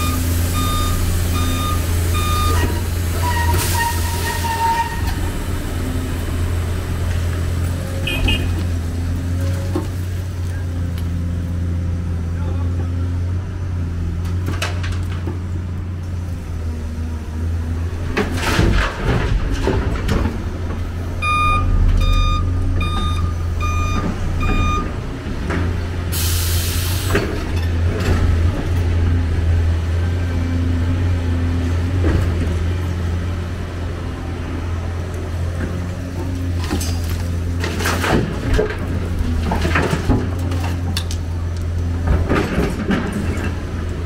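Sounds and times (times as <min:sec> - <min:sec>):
reversing alarm beeping: 0:00.0 - 0:03.4, 0:21.2 - 0:25.0
excavator diesel engine running: 0:00.0 - 0:44.0
air hiss: 0:26.1 - 0:27.2.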